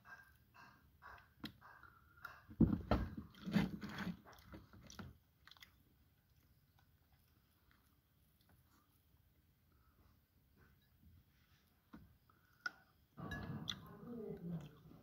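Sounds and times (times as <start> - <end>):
person chewing berries: 3.1 - 9.0.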